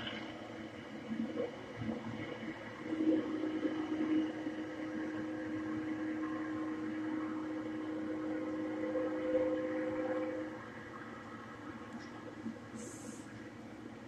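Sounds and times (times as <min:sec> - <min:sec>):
locomotive air horn chord: 0:08.9 - 0:10.6.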